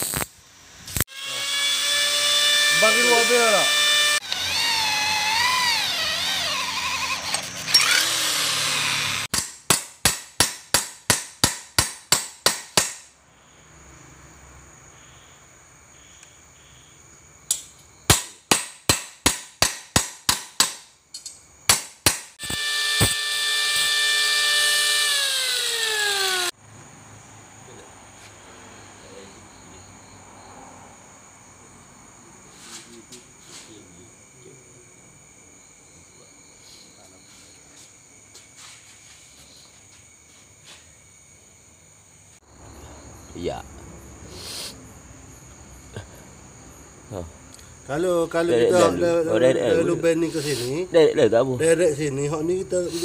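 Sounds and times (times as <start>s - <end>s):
crickets chirping: 0.0s - 53.0s
electric drill squealing in metal: 0.8s - 9.3s, 22.4s - 26.5s.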